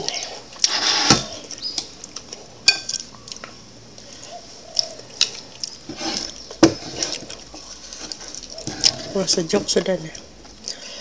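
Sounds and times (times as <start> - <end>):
wooden spatula scraping a pan: 5.9 - 9.8.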